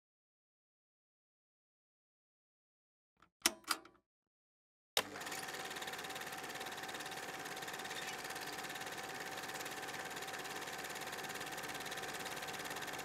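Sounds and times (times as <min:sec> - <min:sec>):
click: 0:03.2 - 0:04.0.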